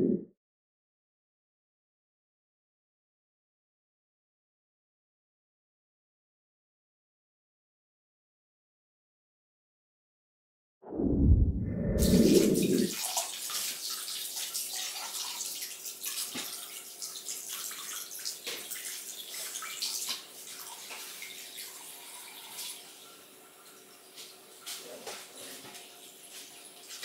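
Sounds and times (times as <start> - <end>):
loud low rumble: 10.8 - 12.9
hose water splashing into pool: 12.0 - 22.9, 24.2 - 27.0.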